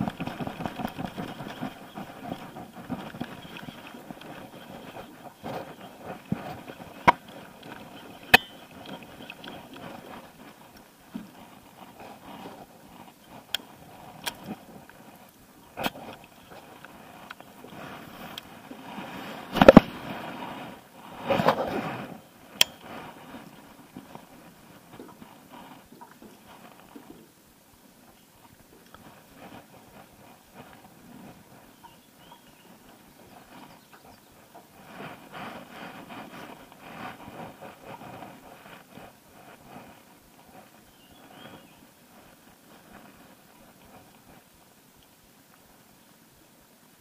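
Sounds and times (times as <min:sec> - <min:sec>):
fishing tackle clicks and knocks: 0:00.0 - 0:11.3, 0:13.3 - 0:14.6
low rustle: 0:00.0 - 0:47.0.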